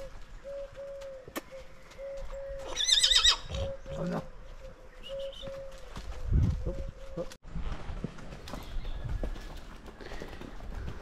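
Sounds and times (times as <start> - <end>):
hooves on dirt trail: 0.0 - 11.0
horse whinnying: 2.7 - 3.6.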